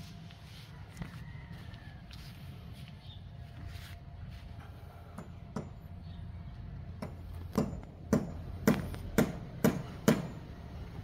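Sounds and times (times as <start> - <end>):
steady low rumble: 0.0 - 11.0
sharp ringing knocks: 5.1 - 5.9, 7.0 - 10.5.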